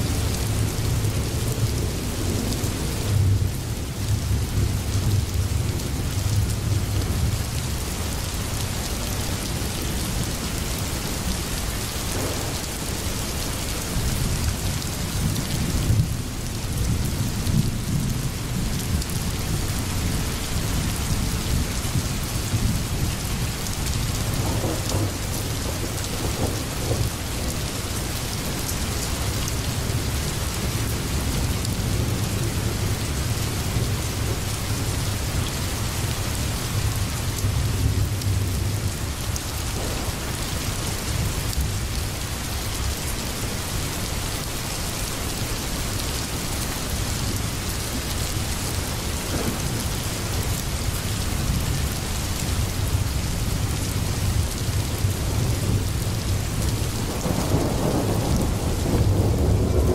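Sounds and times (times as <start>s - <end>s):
rain hissing: 7.7s - 15.3s, 24.2s - 59.9s.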